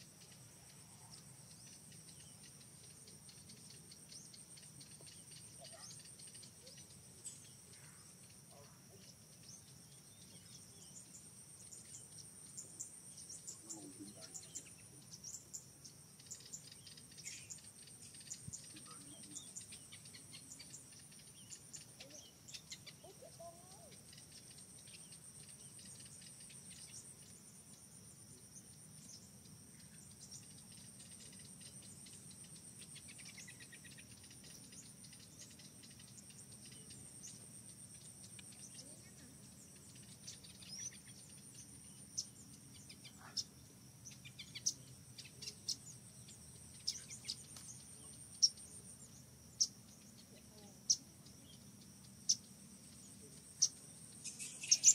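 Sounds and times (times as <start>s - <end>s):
insects trilling high-pitched: 0.0s - 54.9s.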